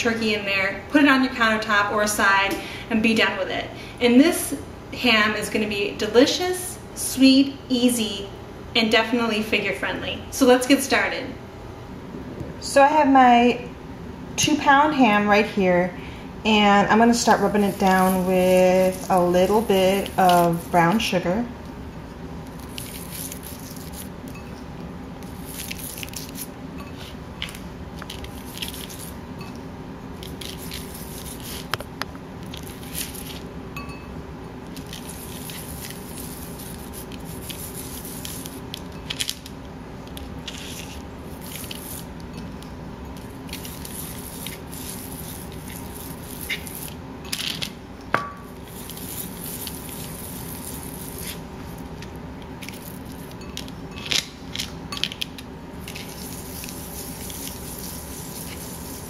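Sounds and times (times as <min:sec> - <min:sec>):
steady low hum: 0:00.0 - 0:59.0
hands rubbing sugar on meat: 0:17.2 - 0:21.1, 0:22.5 - 0:24.2, 0:28.1 - 0:29.2, 0:30.2 - 0:31.8, 0:34.8 - 0:38.7, 0:40.4 - 0:42.2, 0:43.4 - 0:47.0, 0:48.6 - 0:51.5, 0:55.8 - 0:59.0.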